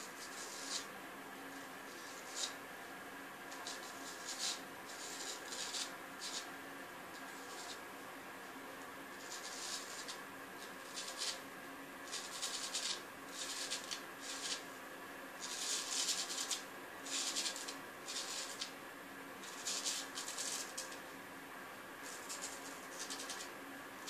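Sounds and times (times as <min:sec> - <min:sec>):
razor scraping stubble: 0:00.1 - 0:00.9, 0:01.9 - 0:02.6, 0:03.6 - 0:06.5, 0:09.2 - 0:11.4, 0:12.0 - 0:14.6, 0:15.4 - 0:18.7, 0:19.4 - 0:21.0, 0:22.1 - 0:23.5.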